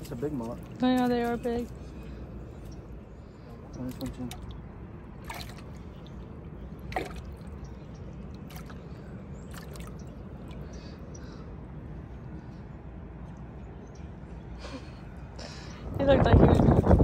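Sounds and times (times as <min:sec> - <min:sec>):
water dripping: 0:03.7 - 0:10.9
hand splashing in bucket of water: 0:05.2 - 0:06.1, 0:06.8 - 0:07.6, 0:09.5 - 0:10.0.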